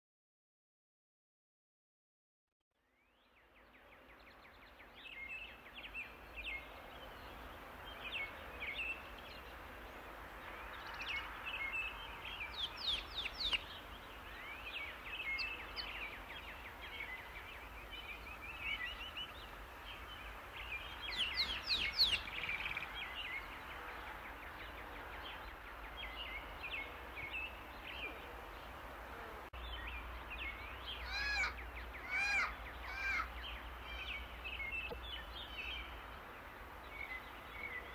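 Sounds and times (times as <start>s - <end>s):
background hiss: 3.1s - 37.9s
birds chirping and calling: 10.6s - 28.8s, 29.6s - 36.0s.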